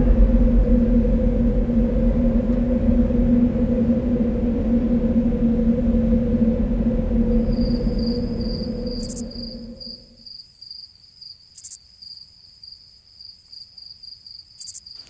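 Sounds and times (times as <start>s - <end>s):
low droning hum: 0.0s - 10.3s
cricket chirping: 0.0s - 15.0s.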